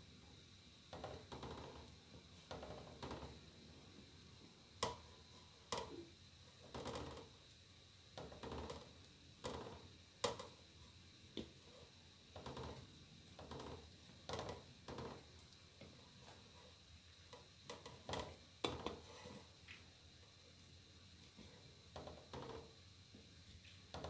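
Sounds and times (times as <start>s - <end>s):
wooden spatula scraping a pan: 17.7s - 19.6s.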